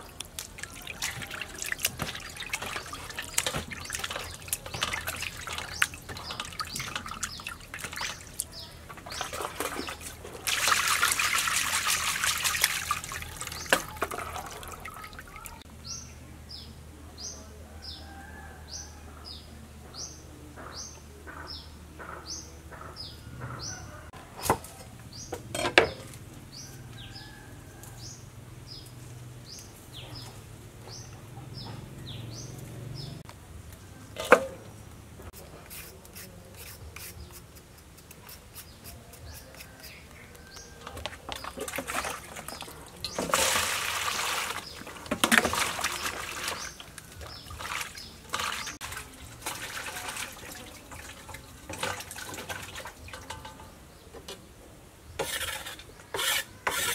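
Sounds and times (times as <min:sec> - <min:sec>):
water splashing and pouring: 0:00.0 - 0:15.6, 0:40.9 - 0:53.6.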